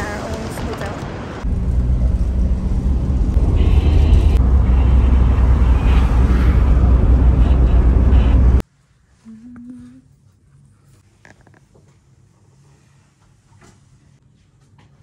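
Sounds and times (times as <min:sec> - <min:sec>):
car driving at highway speed: 0:00.2 - 0:08.6.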